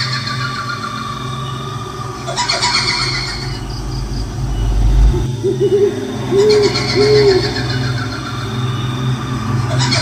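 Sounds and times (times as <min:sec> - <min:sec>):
low rumbling drone: 0:00.5 - 0:09.7
owl-like hoots: 0:05.4 - 0:08.1.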